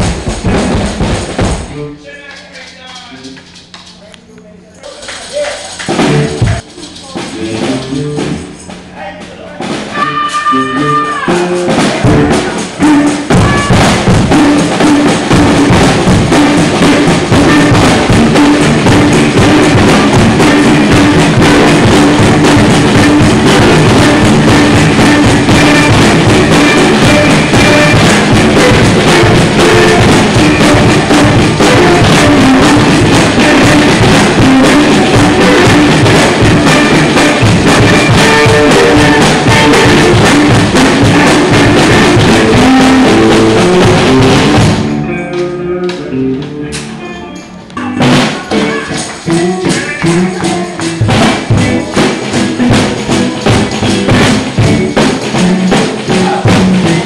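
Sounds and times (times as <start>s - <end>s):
drum kit fast beat: 0.0s - 4.0s, 5.6s - 8.9s, 9.6s - 45.0s, 47.8s - 57.0s
live church music: 0.0s - 57.0s.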